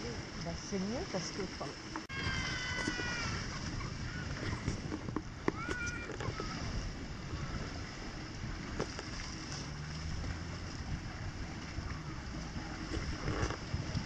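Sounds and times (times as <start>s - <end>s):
sea waves washing on beach: 0.0s - 14.0s
wind buffeting microphone: 0.0s - 14.0s
faint low engine drone: 4.1s - 14.0s.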